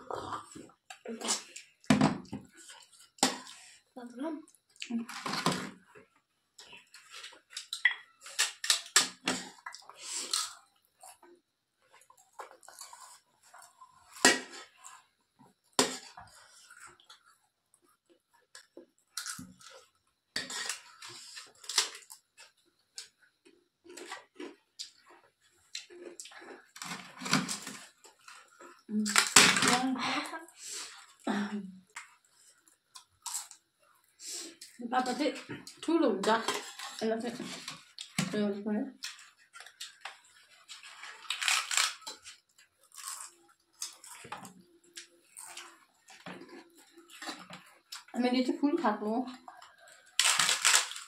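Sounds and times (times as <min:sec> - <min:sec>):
chewing: 0:00.0 - 0:03.7, 0:05.8 - 0:20.0, 0:20.6 - 0:29.1, 0:39.0 - 0:48.2, 0:49.4 - 0:51.0
crunching crisp papad: 0:40.6 - 0:44.3, 0:49.8 - 0:51.0.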